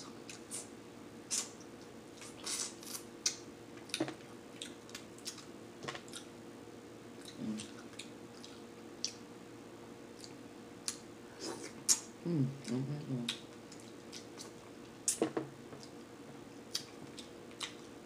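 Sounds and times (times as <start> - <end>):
faint steady hum: 0.0 - 18.0
wet squishes of chewing: 2.2 - 6.3, 7.2 - 9.2.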